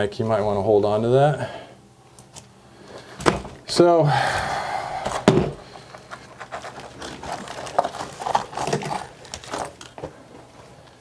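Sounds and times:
small clicks and scrapes: 5.9s - 10.1s.

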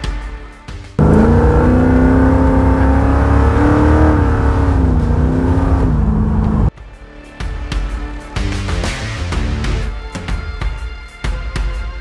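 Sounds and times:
car engine accelerating hard: 1.0s - 6.7s.

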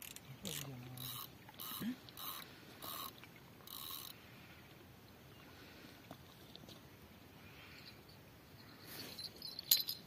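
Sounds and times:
fishing reel ratcheting: 0.0s - 3.1s, 3.7s - 4.2s.

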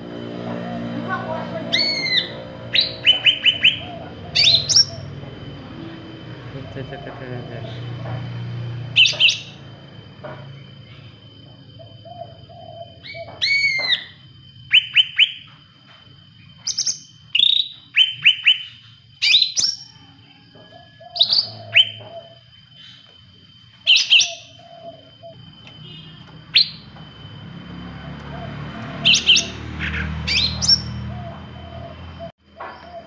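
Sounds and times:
bird singing chirps and whistles: 1.7s - 5.1s, 9.0s - 9.6s, 12.5s - 15.5s, 16.6s - 19.9s, 21.2s - 23.0s, 23.8s - 26.9s, 29.0s - 31.1s.

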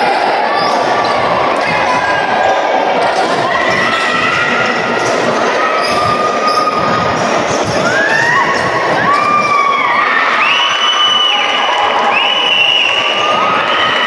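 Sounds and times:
crowd noise: 0.0s - 14.0s.

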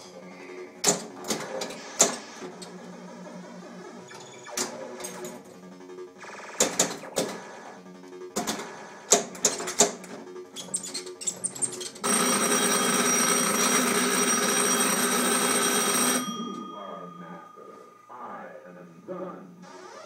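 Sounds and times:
electronic game sounds: 1.4s - 18.4s
pinball ball and flipper clacks: 6.6s - 7.6s, 8.4s - 10.1s.

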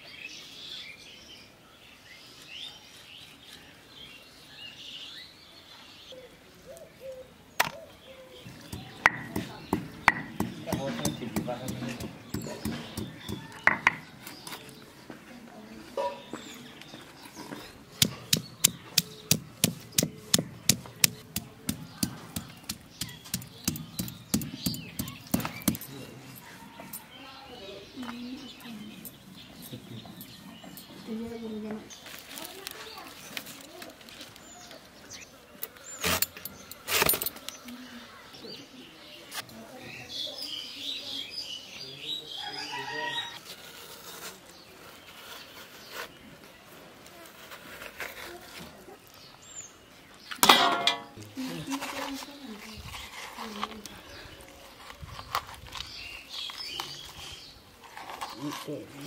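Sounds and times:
stone pestle pounding: 8.7s - 14.0s, 18.0s - 25.8s.

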